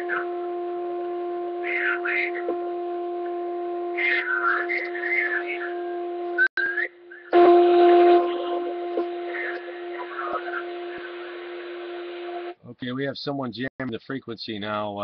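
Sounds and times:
humming radio carrier tone: 0.0s - 12.5s
faint garbled radio voice: 1.7s - 2.5s, 4.0s - 5.8s, 7.2s - 11.5s.

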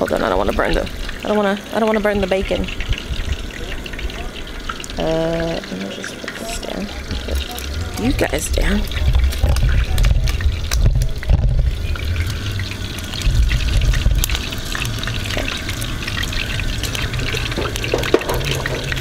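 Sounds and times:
bacon sizzling in a frying pan: 0.0s - 19.0s
low rumble: 7.0s - 19.0s.

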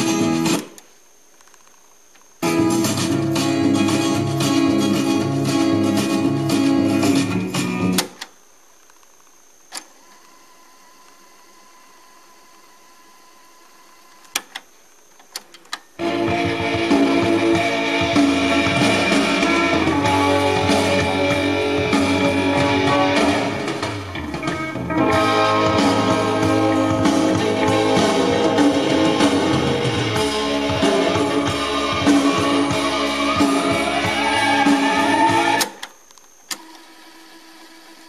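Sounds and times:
guitar and drums music from cassette: 0.0s - 1.0s, 1.6s - 8.3s, 15.3s - 36.0s
cassette deck stop key: 7.8s - 8.4s, 14.2s - 15.9s.

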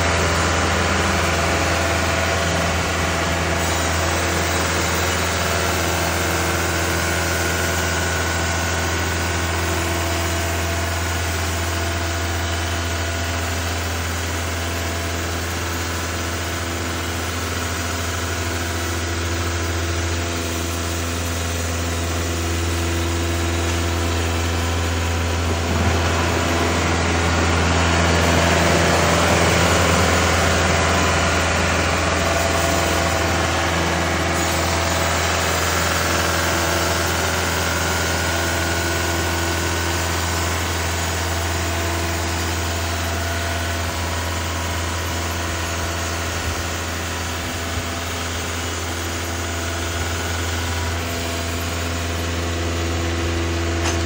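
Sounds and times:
sawmill mechanical hum: 0.0s - 54.0s.

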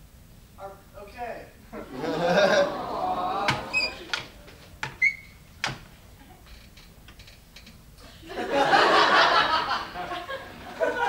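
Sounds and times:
audience laughing: 1.8s - 4.4s, 8.2s - 11.0s
short squeak: 3.7s - 4.1s, 5.0s - 5.4s.

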